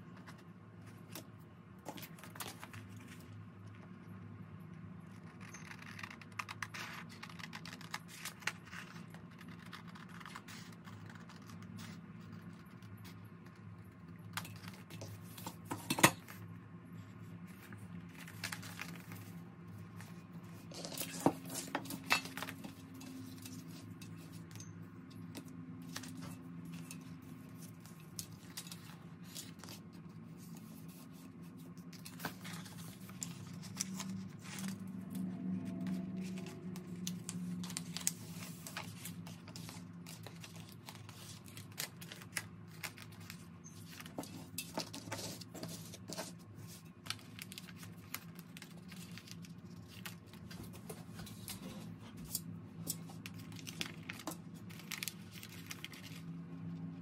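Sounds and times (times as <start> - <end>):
paper rustling: 17.5 - 24.6, 25.3 - 57.0.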